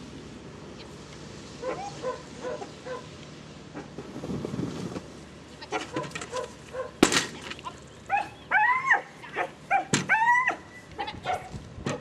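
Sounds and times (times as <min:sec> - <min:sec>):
dog barking: 0:01.6 - 0:03.1, 0:05.9 - 0:07.0, 0:11.2 - 0:11.5.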